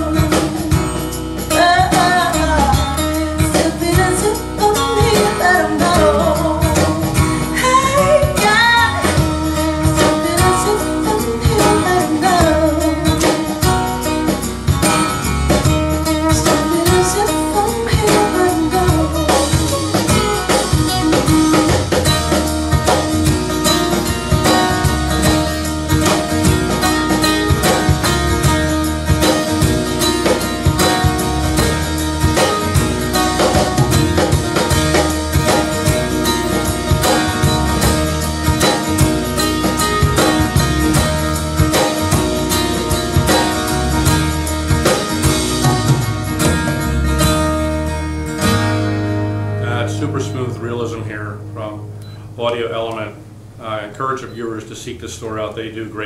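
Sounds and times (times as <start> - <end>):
person singing: 0.0 - 13.8, 16.1 - 21.6
guitar: 0.0 - 56.0.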